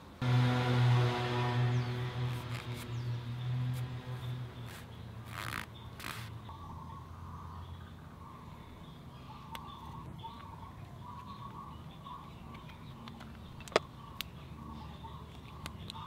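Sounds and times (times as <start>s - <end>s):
low background rumble: 0.2s - 10.6s
faint bird calls: 4.6s - 16.0s.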